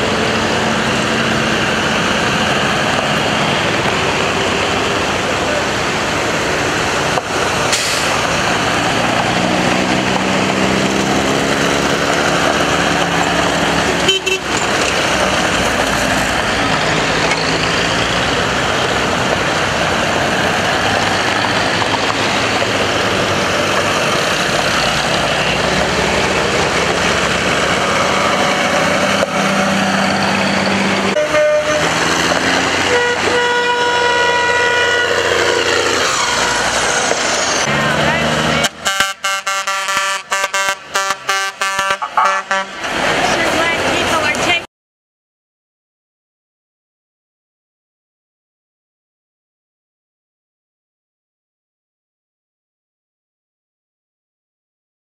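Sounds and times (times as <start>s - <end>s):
engine revving: 0.0s - 44.6s
military vehicles driving past: 0.0s - 44.7s
vehicle horn tooting: 14.0s - 14.5s, 31.2s - 32.0s, 32.8s - 35.4s, 38.8s - 42.8s.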